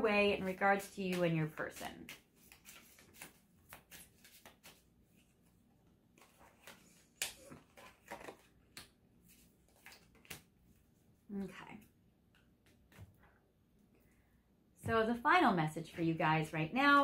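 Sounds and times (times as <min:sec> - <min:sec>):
soft card clicks and rustles: 0:00.8 - 0:11.0.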